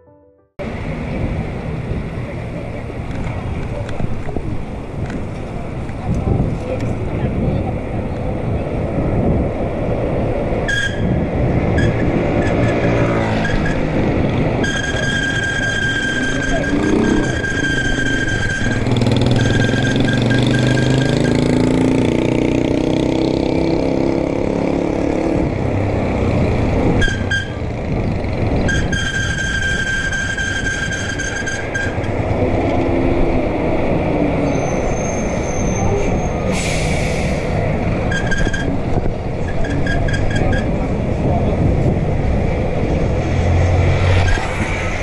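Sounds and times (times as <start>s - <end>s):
road noise: 0.0s - 45.0s.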